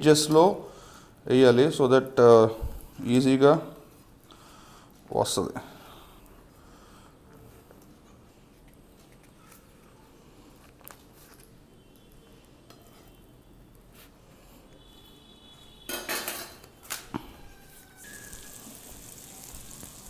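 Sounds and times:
batter sizzling in a pan: 17.9s - 20.0s.

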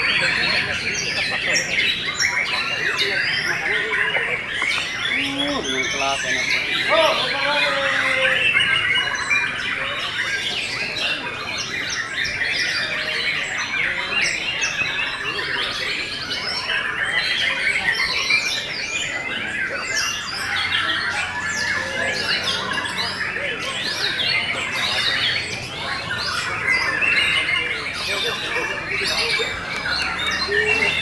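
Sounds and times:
chorus of songbirds: 0.0s - 31.0s.

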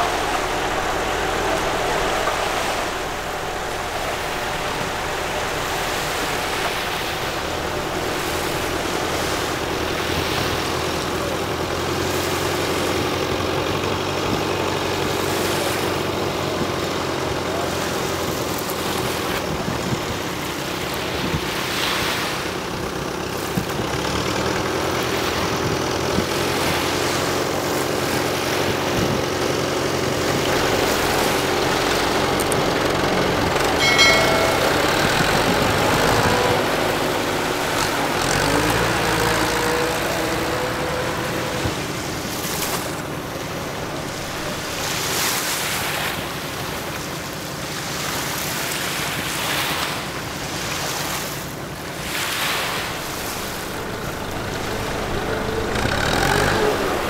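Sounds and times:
brief high tone: 0.0s - 11.0s, 33.8s - 41.6s
tractor engine running: 0.0s - 46.7s, 51.7s - 57.0s
waves washing and splashing: 0.0s - 57.0s.

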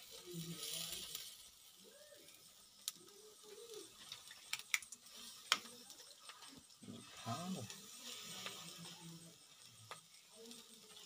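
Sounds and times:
embers popping and clicking: 0.0s - 11.0s
meat sizzling on grill: 0.0s - 11.0s
faint wavering calls: 1.6s - 4.4s.

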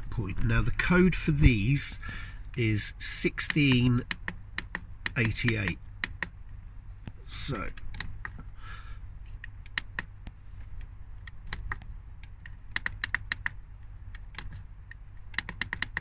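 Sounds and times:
steady low hum: 0.0s - 16.0s
push buttons clicking: 3.4s - 6.3s, 9.4s - 10.1s, 10.8s - 16.0s.

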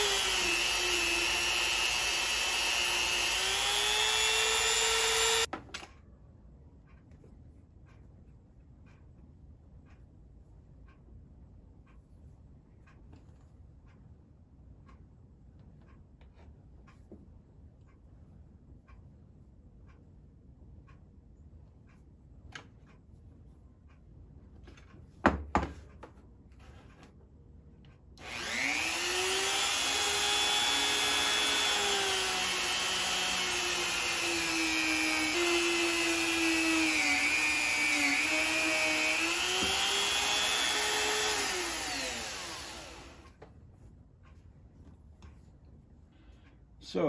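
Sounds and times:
rotary tool motor whine: 0.0s - 5.5s, 28.2s - 43.4s.

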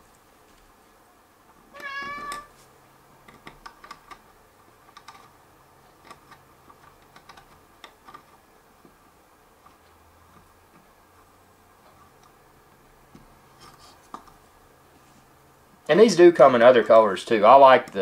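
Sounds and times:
cat meowing: 1.7s - 2.6s.

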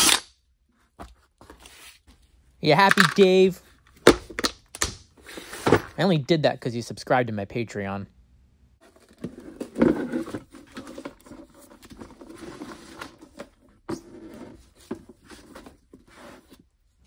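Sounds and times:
plastic parts rustling and clicking: 2.8s - 3.4s.

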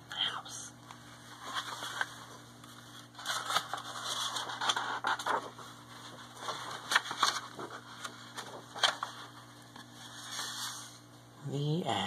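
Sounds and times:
paper pages flipping: 0.9s - 11.0s.

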